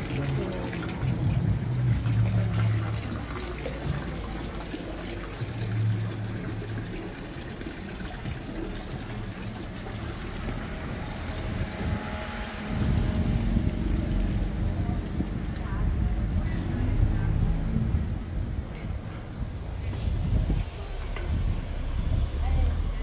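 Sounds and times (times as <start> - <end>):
fountain water trickling: 0.0 - 17.7
low street ambience: 0.0 - 23.0.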